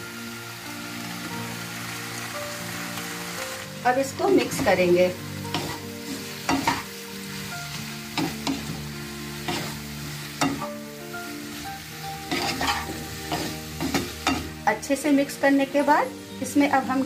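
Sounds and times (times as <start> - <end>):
faint frying sizzle: 0.0 - 17.0
soft background music: 0.0 - 17.0
spatula scraping pan: 9.4 - 9.8, 12.3 - 14.5.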